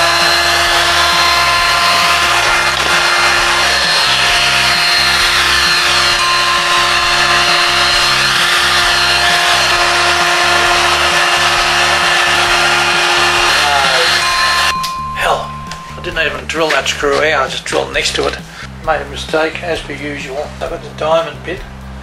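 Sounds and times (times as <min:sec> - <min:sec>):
heat gun blowing air: 0:00.0 - 0:14.8.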